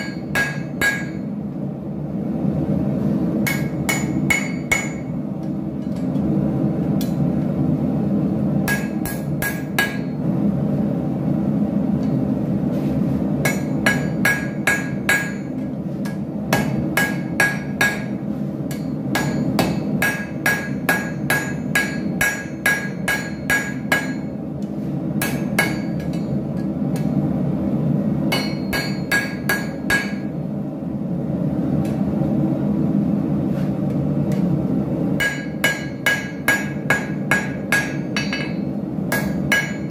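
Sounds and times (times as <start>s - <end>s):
hammer striking metal on anvil: 0.0s - 1.3s, 3.4s - 5.1s, 8.6s - 10.2s, 13.4s - 24.4s, 25.2s - 27.2s, 28.3s - 30.3s, 35.2s - 39.9s.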